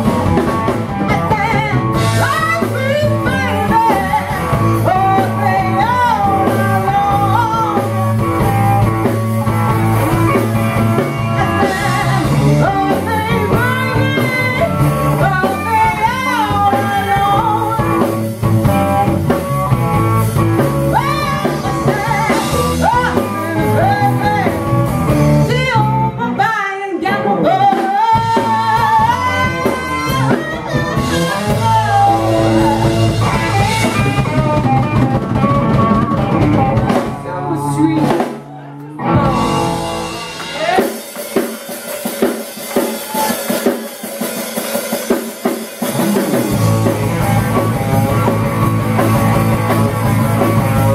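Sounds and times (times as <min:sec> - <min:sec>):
blues rock band playing: 0:00.0 - 0:50.9
woman singing into microphone: 0:01.0 - 0:08.0, 0:10.9 - 0:18.1, 0:20.9 - 0:24.7, 0:25.4 - 0:35.0.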